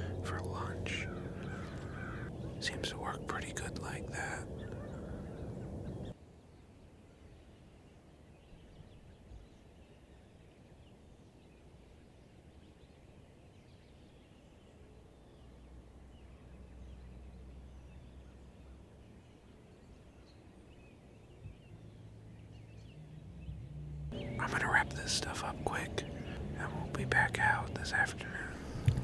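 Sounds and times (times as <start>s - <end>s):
faint bird chirps: 0.0s - 28.9s
low rumble: 21.4s - 29.0s.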